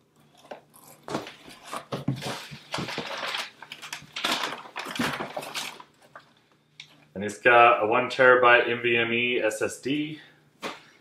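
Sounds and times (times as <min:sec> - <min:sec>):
paper and plastic packaging rustling: 0:01.0 - 0:06.5.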